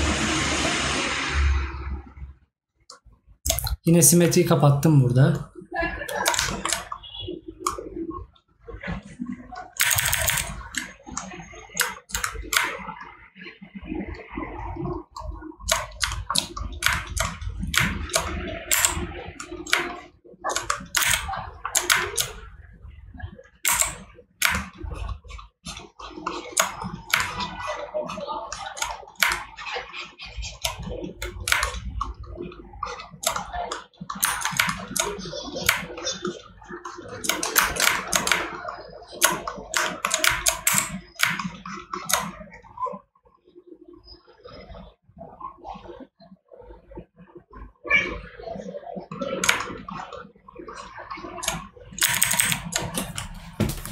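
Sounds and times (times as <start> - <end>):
keyboard and mouse clicking: 3.5 - 4.4, 6.1 - 7.0, 7.6 - 7.9, 9.5 - 12.8, 15.2 - 22.4, 23.6 - 25.1, 26.5 - 27.7, 28.5 - 29.6, 30.5 - 32.1, 33.2 - 36.1, 37.2 - 42.4, 49.4 - 49.7, 51.4 - 53.9.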